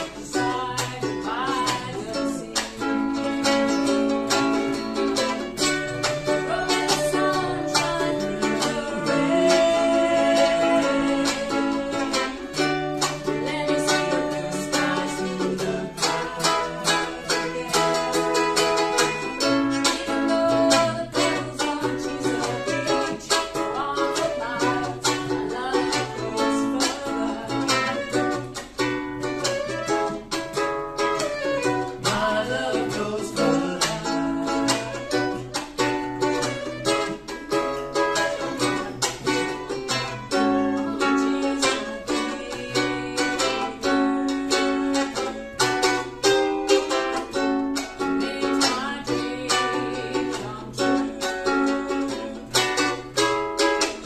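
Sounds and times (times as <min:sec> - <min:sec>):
acoustic guitar strumming: 0:00.0 - 0:54.0
ukulele strumming: 0:00.0 - 0:54.0
fiddle playing sustained notes: 0:03.2 - 0:21.5, 0:31.1 - 0:32.4, 0:38.2 - 0:48.2.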